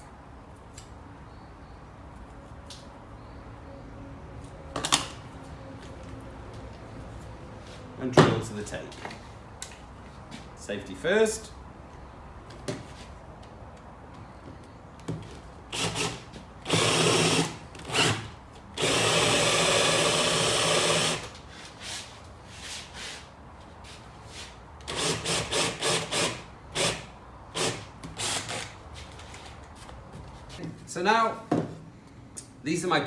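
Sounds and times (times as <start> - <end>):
cordless drill boring into wood: 15.7 - 21.3, 24.9 - 27.0.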